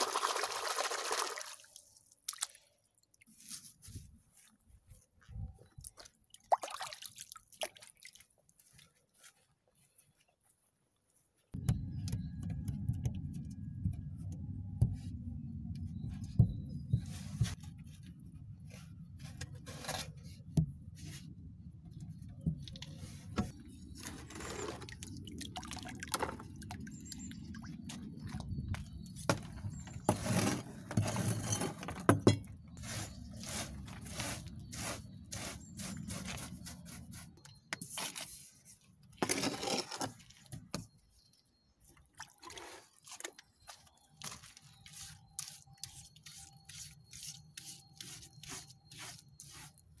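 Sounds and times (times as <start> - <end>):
brush sweeping on wooden boards: 3.3 - 4.6, 16.2 - 21.4, 32.7 - 38.8, 44.8 - 49.9.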